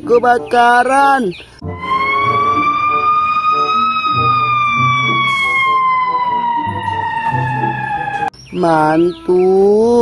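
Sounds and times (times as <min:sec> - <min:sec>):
fire engine siren wailing: 0:01.6 - 0:08.3.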